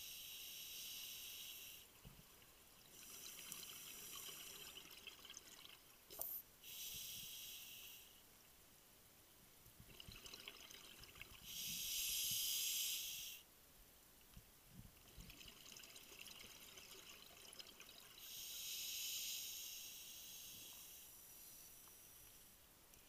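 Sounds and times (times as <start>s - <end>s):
crackling bubbles: 2.1s - 6.4s, 9.8s - 11.5s, 14.8s - 18.3s.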